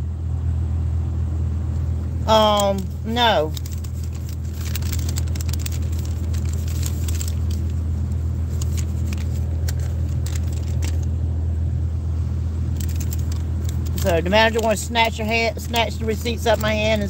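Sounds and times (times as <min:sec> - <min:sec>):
car engine idling: 0:01.0 - 0:17.0
light clicks and rustles of handling: 0:01.8 - 0:11.1, 0:12.8 - 0:17.0.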